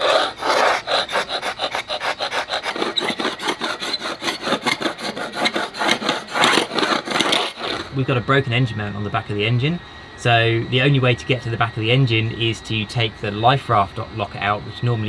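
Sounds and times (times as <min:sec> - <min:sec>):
scraper rasping off paint: 0:00.0 - 0:08.0.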